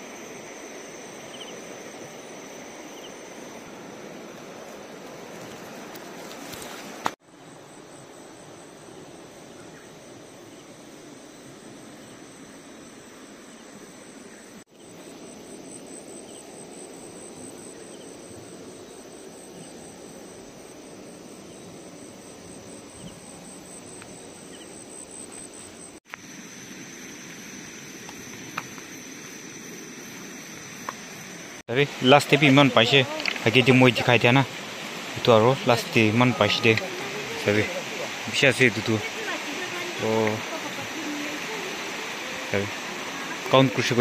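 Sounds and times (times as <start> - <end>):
insect drone: 0.0 - 44.0
river water rushing: 31.3 - 44.0.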